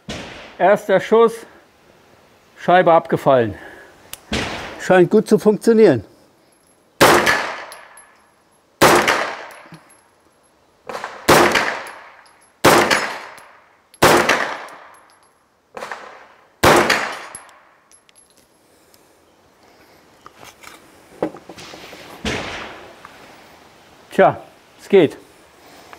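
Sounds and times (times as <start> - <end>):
gunshot echo: 0.1 - 0.6, 4.3 - 4.8, 7.0 - 7.8, 8.8 - 9.7, 10.9 - 13.4, 14.0 - 14.9, 15.8 - 17.3, 22.2 - 22.9
carbine single gunshots: 7.0 - 8.0, 8.8 - 9.7, 10.9 - 15.0, 15.8 - 17.5.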